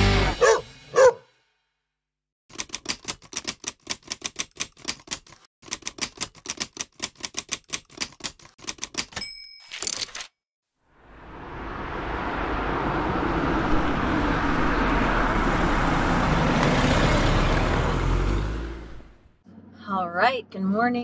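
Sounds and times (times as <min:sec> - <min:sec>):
typewriter keys clacking: 0:02.5 - 0:10.3
typewriter bell ding: 0:09.0 - 0:10.3.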